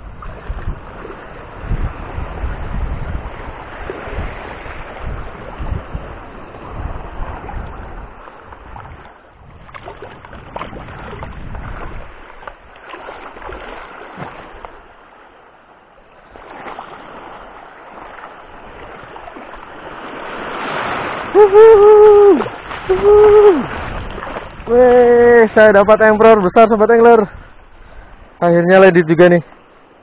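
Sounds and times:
wind rumble on microphone: 0.0s - 15.2s, 16.1s - 30.0s
seawater lapping at shore: 0.0s - 30.0s
small water splashes: 0.1s - 1.4s, 7.2s - 15.4s, 16.2s - 25.1s.

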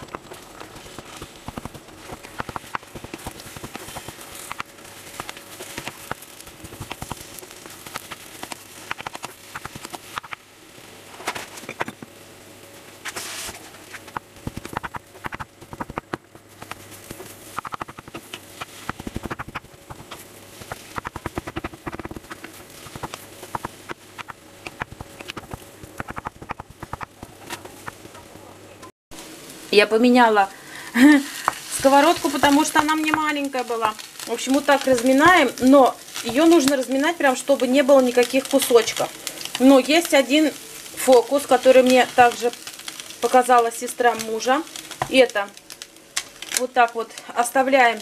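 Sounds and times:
wooden spatula scraping frying pan: 0.0s - 10.3s, 13.0s - 28.2s.

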